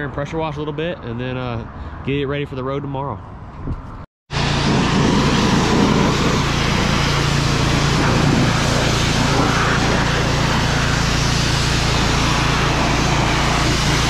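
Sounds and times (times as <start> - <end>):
pressure washer motor hum: 4.3 - 14.0
water jet spraying: 4.3 - 14.0.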